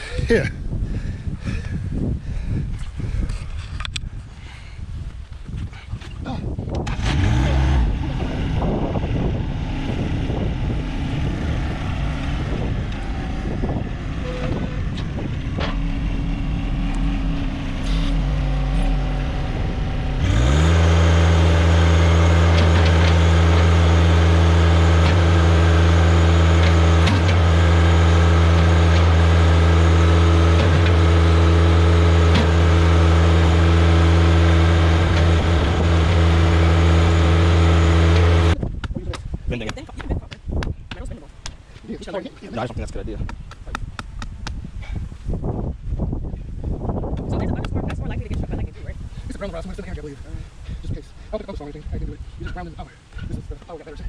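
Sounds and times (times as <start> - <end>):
tractor diesel engine running: 6.6 - 38.8
engine knocks: 6.7 - 39.1.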